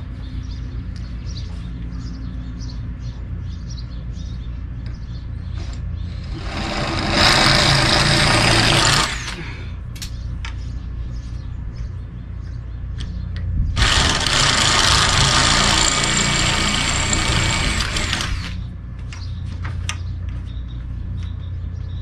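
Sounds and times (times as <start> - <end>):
cordless drill running: 6.1 - 9.4, 13.8 - 18.6.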